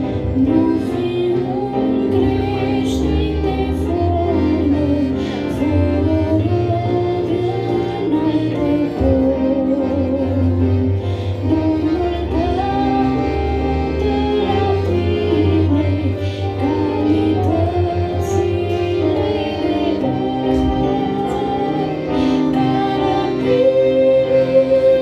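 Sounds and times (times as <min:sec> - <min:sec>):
instrumental accompaniment: 0:00.0 - 0:25.0
woman singing a hymn: 0:00.0 - 0:25.0.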